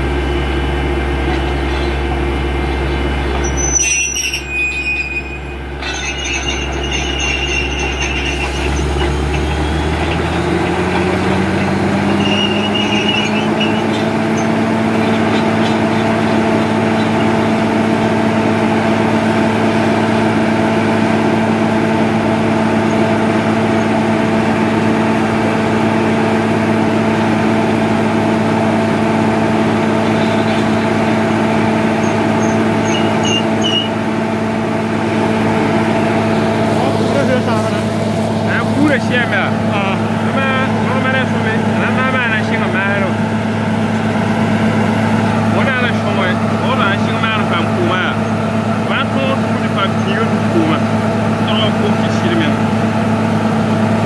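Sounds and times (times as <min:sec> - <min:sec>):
drilling rig engine running: 0:00.0 - 0:54.0
high squeal: 0:02.8 - 0:10.0, 0:11.4 - 0:14.6, 0:32.0 - 0:34.0.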